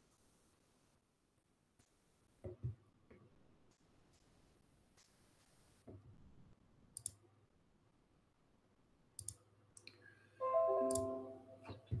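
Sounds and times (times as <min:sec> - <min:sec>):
computer mouse clicks: 0:06.9 - 0:07.2, 0:09.2 - 0:10.0
video call chime: 0:10.4 - 0:11.7.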